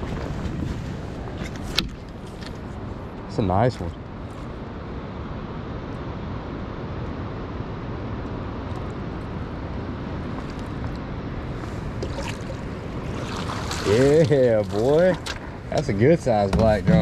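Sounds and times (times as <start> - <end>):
steady rushing noise: 0.0 - 17.0
water splashing and pouring: 11.8 - 15.6.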